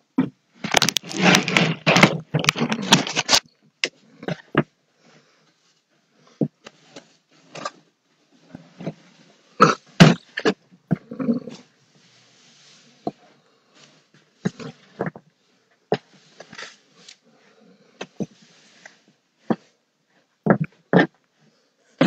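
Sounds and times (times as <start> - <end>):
broom sweeping a floor: 11.6 - 15.0, 16.0 - 17.4, 18.0 - 19.8.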